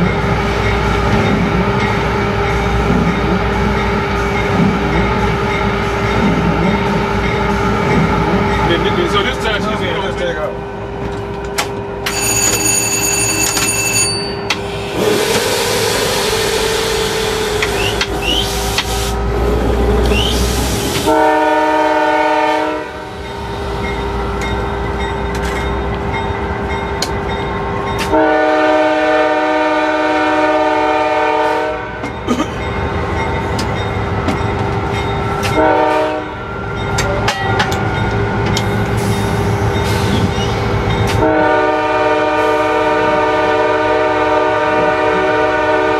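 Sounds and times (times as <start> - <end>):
locomotive air horn: 20.1 - 23.1, 28.1 - 32.0, 35.6 - 36.4, 41.2 - 45.9.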